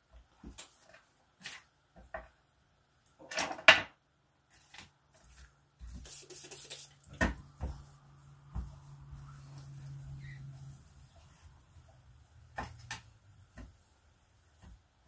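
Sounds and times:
low steady hum: 0:07.2 - 0:14.8.

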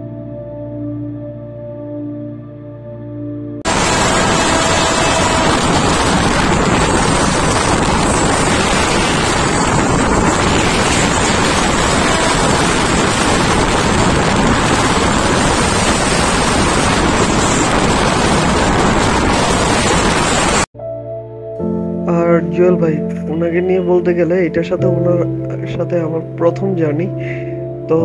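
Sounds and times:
wind buffeting microphone: 0:03.6 - 0:20.7
passenger train running: 0:03.7 - 0:20.6.

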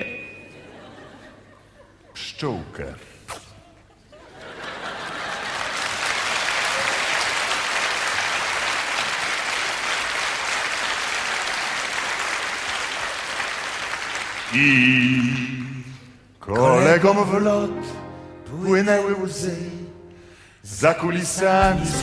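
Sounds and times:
audience applause: 0:04.4 - 0:15.0.

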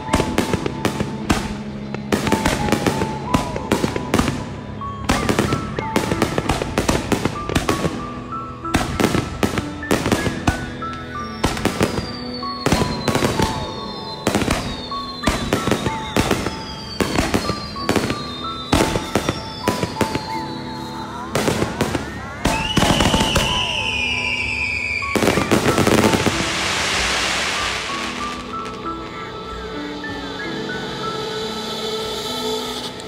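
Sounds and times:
music with stepping melody: 0:00.0 - 0:20.3.

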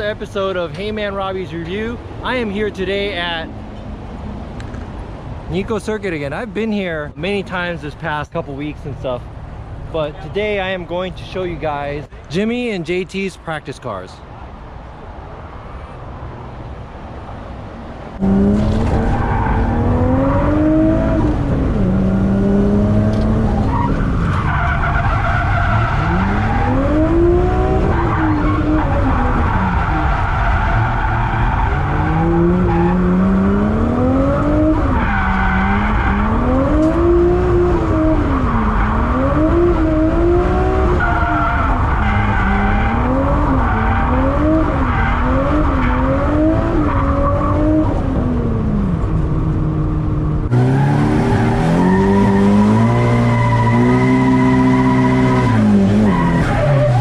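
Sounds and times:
car engine revving: 0:18.2 - 0:57.0
tyres squealing: 0:50.6 - 0:57.0.

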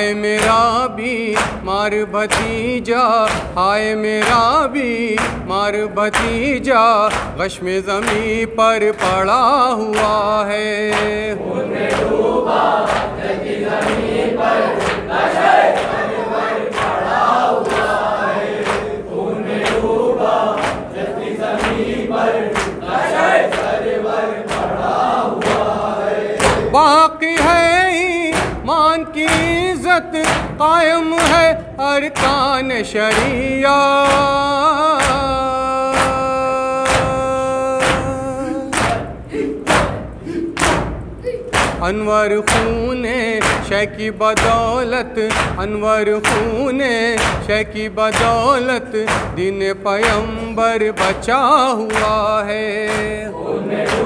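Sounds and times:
man singing: 0:00.0 - 0:12.0, 0:25.6 - 0:39.5, 0:41.2 - 0:54.0
men chanting together: 0:00.0 - 0:54.0
open-handed chest beats: 0:00.3 - 0:54.0
hands beating on chests: 0:27.4 - 0:31.5, 0:32.2 - 0:43.8, 0:44.4 - 0:52.3.

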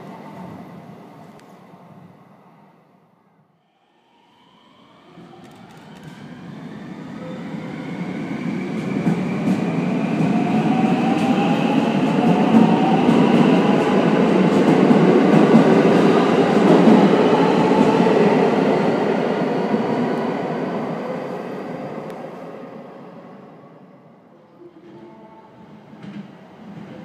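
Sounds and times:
train wheels rumbling and clattering: 0:08.6 - 0:18.4.

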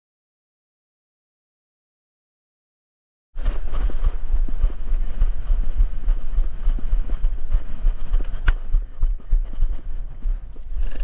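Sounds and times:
running footsteps: 0:03.4 - 0:11.0
wind rumble on microphone: 0:03.4 - 0:11.0
gear knocking and rattling: 0:10.4 - 0:11.0.

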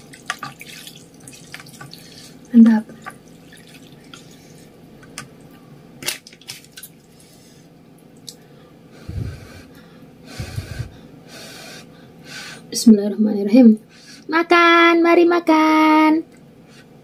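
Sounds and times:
puffs of breath blowing: 0:08.9 - 0:12.7.

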